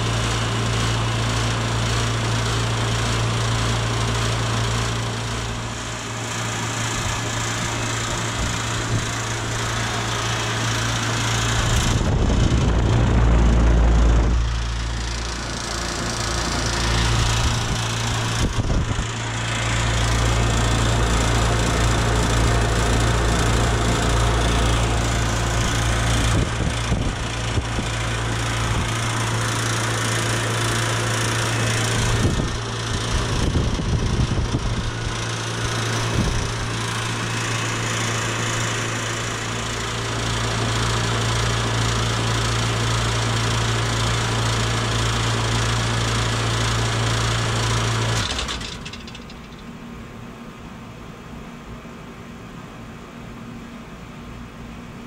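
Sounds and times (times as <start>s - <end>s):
condenser fan whoosh: 0.0s - 49.0s
compressor electrical hum: 0.0s - 55.0s.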